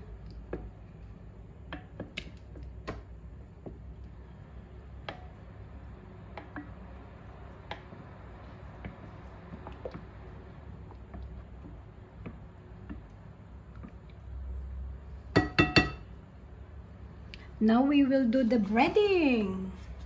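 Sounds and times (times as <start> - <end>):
wet squishing stirring: 0.0 - 15.3
spatula tapping glass bowl: 15.3 - 16.0.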